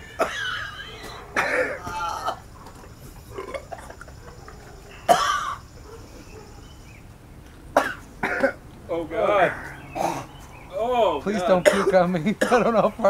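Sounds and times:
man coughing and gagging: 0.0 - 2.5, 3.3 - 4.2, 5.1 - 5.6, 7.8 - 8.6, 11.6 - 12.9.

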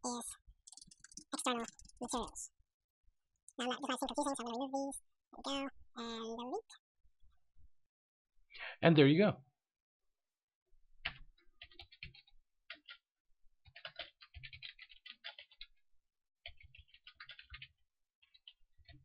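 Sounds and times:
faint keyboard typing: 0.0 - 2.5, 11.0 - 13.0, 13.6 - 15.8, 16.4 - 19.0.

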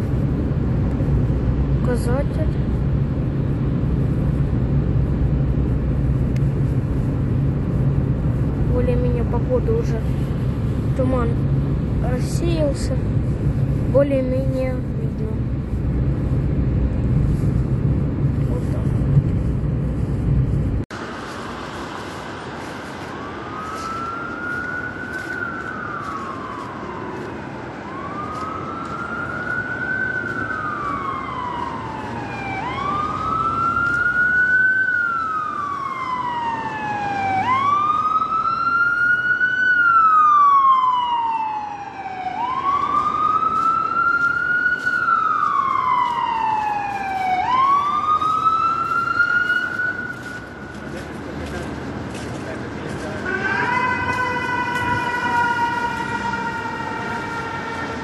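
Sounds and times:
car road rumble: 0.0 - 58.0
emergency vehicle siren wailing: 21.0 - 58.0.

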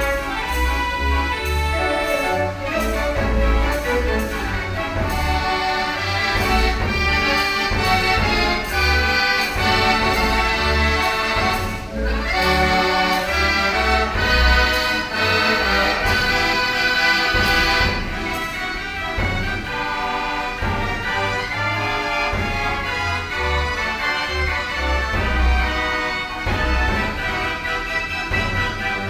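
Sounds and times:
dance organ playing a tune: 0.0 - 29.0.

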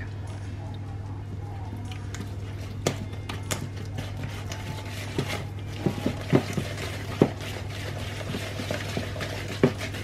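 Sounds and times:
steady low hum: 0.0 - 10.0
whisk beating batter: 1.3 - 10.0
whisk knocking against bowl: 5.0 - 10.0.

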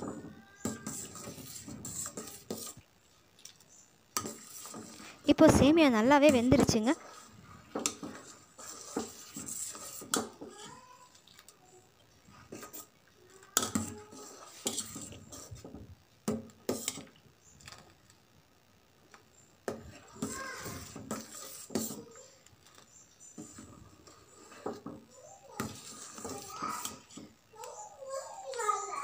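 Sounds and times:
metal spoon scraping a steel pot: 0.6 - 2.8, 4.2 - 5.2, 6.3 - 10.7, 13.6 - 15.7, 20.2 - 22.1, 25.6 - 27.3.

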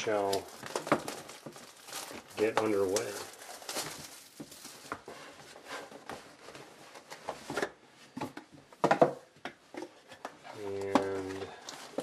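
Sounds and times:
cardboard rustling and scraping: 0.2 - 8.4.

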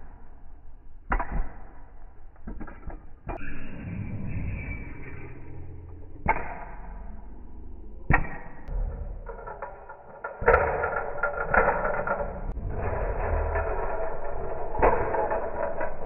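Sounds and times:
rough rattling noise: 8.6 - 16.0.

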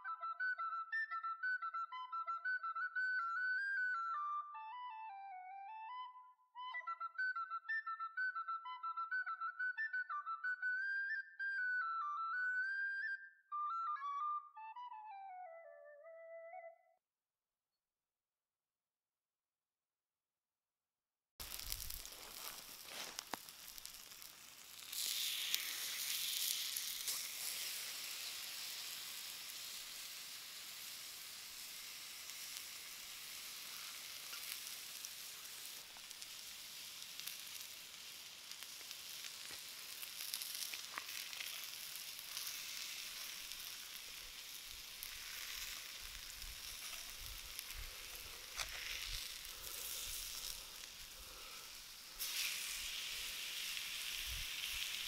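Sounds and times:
small clicks: 21.4 - 27.2
meat sizzling on hot stone: 21.4 - 55.0.

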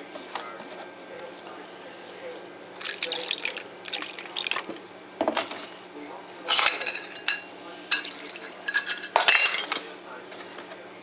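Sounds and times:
metal utensils clinking in steel bowl: 6.5 - 9.9.

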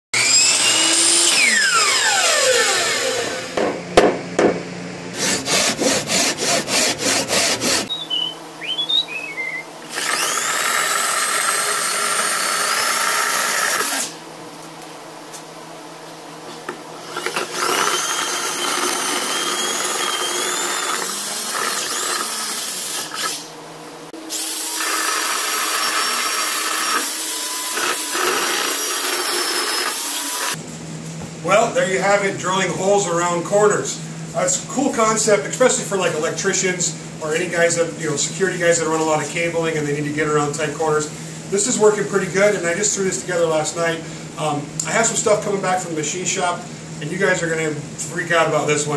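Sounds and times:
power tool drilling into wood: 0.2 - 3.6, 9.8 - 14.2, 17.0 - 23.5, 24.3 - 30.6.

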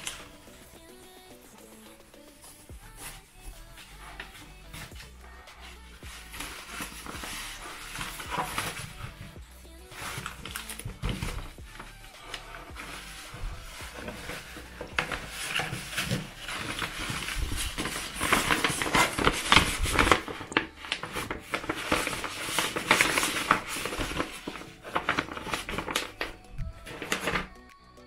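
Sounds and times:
cloth bag brushing paper: 0.0 - 27.5
paper rustling and crinkling: 0.0 - 27.6.

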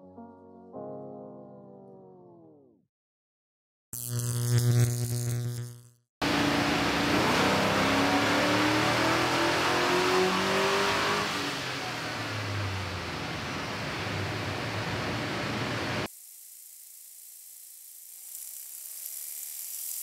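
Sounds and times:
engine revving at full throttle: 6.2 - 16.1.

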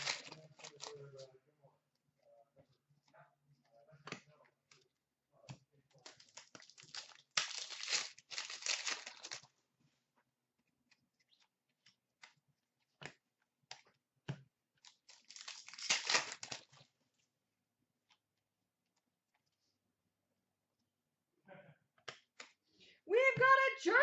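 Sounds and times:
card pack wrapper tearing: 0.0 - 1.0, 6.1 - 9.5, 15.0 - 16.8
cards clicking and rustling: 0.0 - 1.2, 6.0 - 9.5, 11.4 - 16.8.

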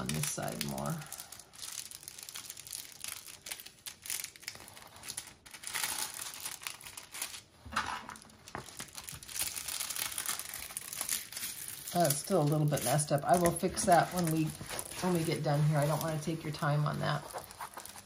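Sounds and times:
plastic film crinkling: 0.0 - 18.0.

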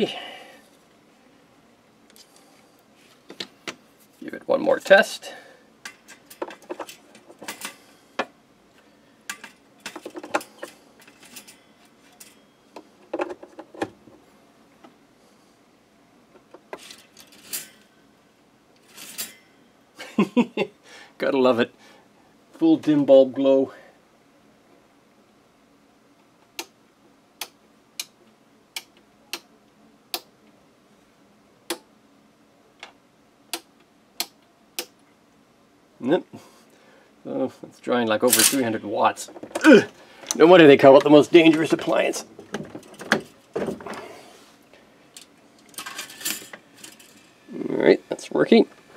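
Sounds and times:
small parts clattering on workbench: 5.9 - 8.3, 45.2 - 47.3.

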